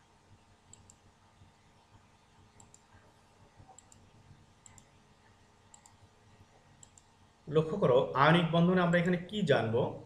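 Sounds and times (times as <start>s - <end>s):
faint sharp clicks: 0.7s - 1.0s, 2.6s - 3.0s, 3.7s - 4.9s, 5.7s - 6.0s, 6.8s - 7.1s.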